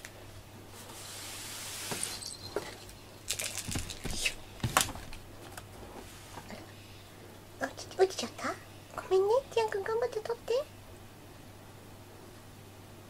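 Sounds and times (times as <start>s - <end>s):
soft hiss: 0.0s - 13.0s
cat toys rustling and knocking: 1.8s - 6.1s.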